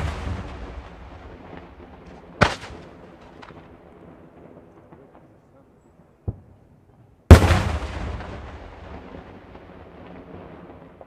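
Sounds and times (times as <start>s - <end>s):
faint firework cracks: 0.0s - 3.8s
firework shells bursting: 0.0s - 3.8s.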